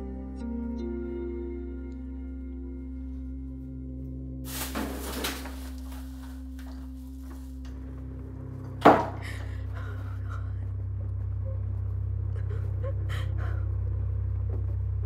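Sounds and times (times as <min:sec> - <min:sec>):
soft sustained music tones: 0:00.0 - 0:15.0
car engine rumble: 0:04.9 - 0:15.0.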